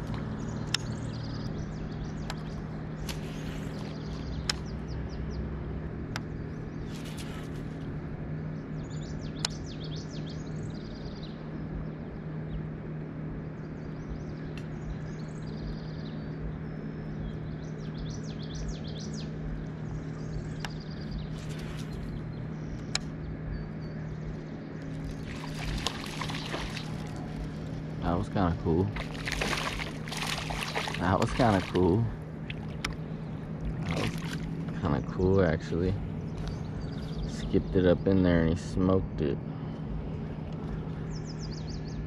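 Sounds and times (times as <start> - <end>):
small birds chirping: 0.0 - 42.0
steady low hum: 0.0 - 42.0
sharp single clicks: 4.4 - 4.7, 9.4 - 9.6, 20.6 - 20.8, 22.8 - 23.1
fish splashing at water surface: 25.0 - 27.7, 28.9 - 32.9, 33.7 - 34.6.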